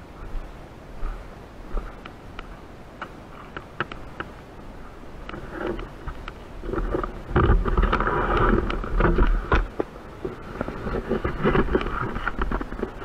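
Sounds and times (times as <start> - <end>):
wind buffeting microphone: 0.0 - 13.0
rustling: 0.2 - 13.0
scattered clicks: 2.0 - 4.4.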